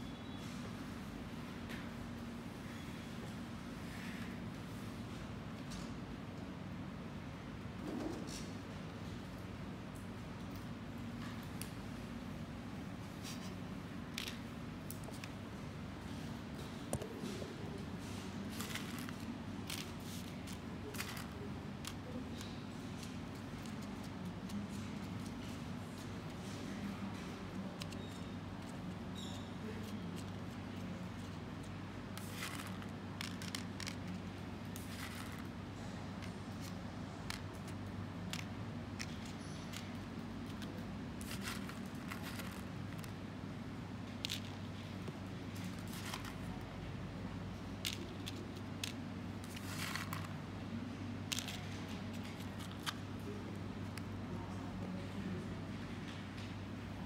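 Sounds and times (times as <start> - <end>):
low room hum: 0.0 - 57.0
dried beans rattling in cup: 18.4 - 22.4, 28.8 - 35.5, 36.2 - 43.2, 47.8 - 50.4.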